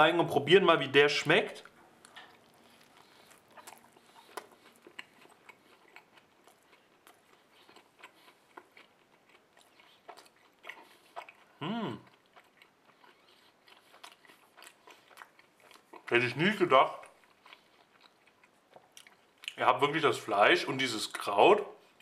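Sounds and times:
person chewing food: 1.5 - 19.6, 21.2 - 22.0
person humming: 11.6 - 12.0.

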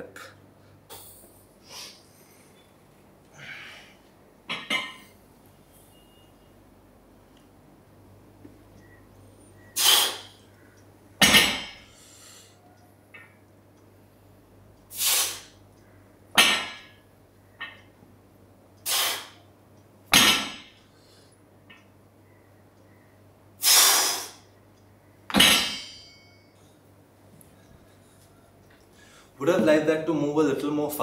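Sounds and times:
faint metal clinks: 25.8 - 26.8.

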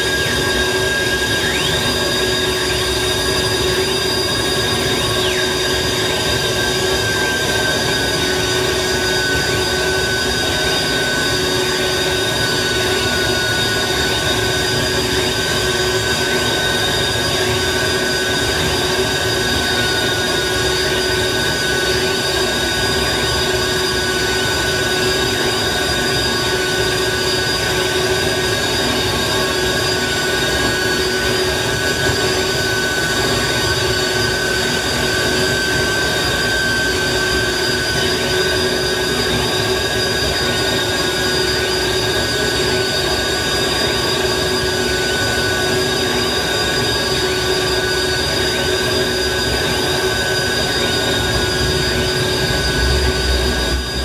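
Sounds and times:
sustained electronic tones: 0.2 - 9.8, 49.0 - 54.0.

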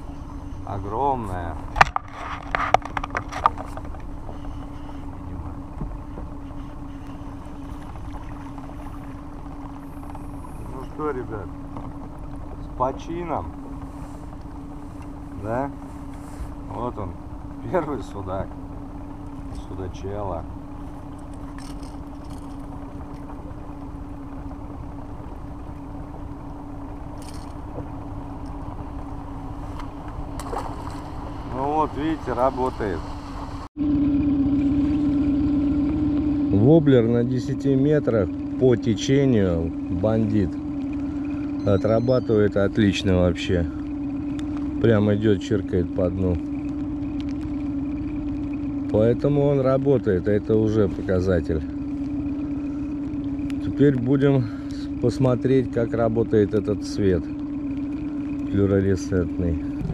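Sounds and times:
outboard motor running: 0.0 - 59.9
wind rumble: 59.5 - 59.9.

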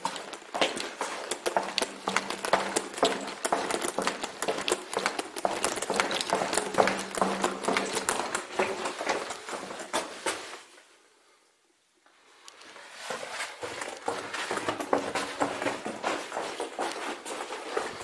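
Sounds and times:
rapid clicking and knocking: 0.2 - 9.0.

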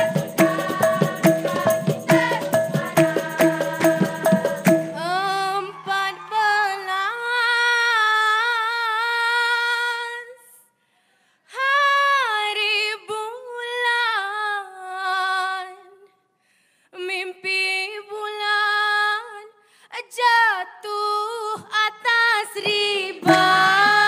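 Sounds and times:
hand percussion: 0.0 - 5.4, 22.5 - 24.0
woman singing unaccompanied: 0.0 - 10.6, 11.5 - 16.0, 17.0 - 24.0.

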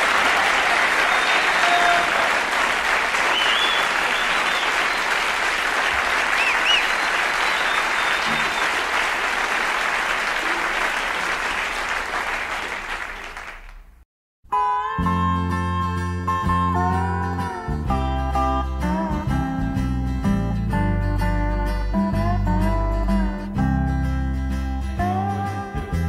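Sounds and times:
audience applause: 0.0 - 14.0
whistles: 1.0 - 1.7, 3.2 - 5.4, 6.1 - 9.0.

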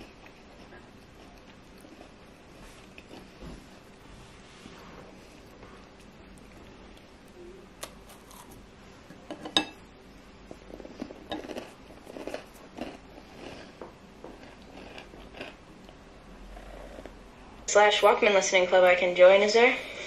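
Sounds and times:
biscuit crunching: 10.5 - 16.0.

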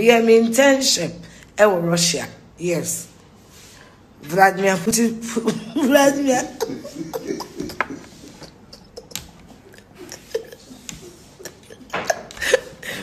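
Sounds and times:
woman giggling softly: 6.3 - 13.0
laughing breath: 6.7 - 13.0.

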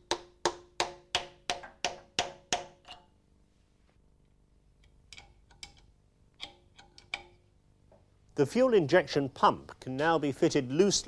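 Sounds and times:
hammer tapping metal tool: 0.0 - 3.1.

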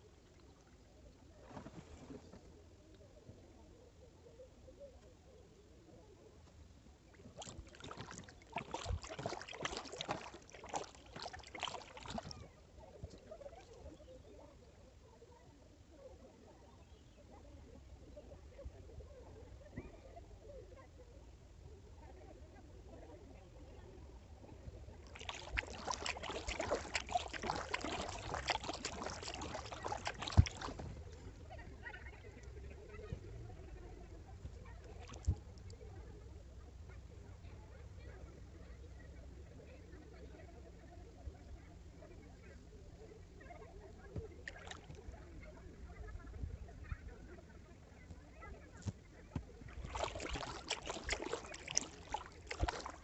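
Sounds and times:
paddle splashing in water: 7.1 - 13.8, 24.8 - 32.5, 34.8 - 35.4, 44.4 - 45.1, 48.8 - 53.0
water lapping: 7.1 - 14.0, 23.6 - 35.8, 44.2 - 45.3, 48.8 - 53.0.

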